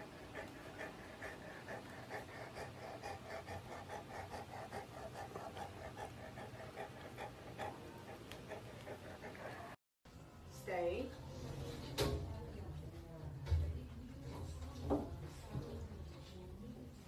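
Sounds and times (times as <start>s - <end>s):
puppy panting: 0.0s - 9.8s.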